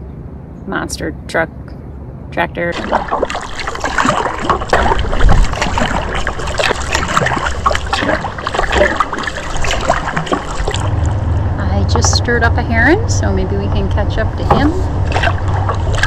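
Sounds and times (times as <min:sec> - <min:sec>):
paddle splashing: 0:02.6 - 0:11.3, 0:13.4 - 0:16.0
water trickling: 0:02.7 - 0:16.0.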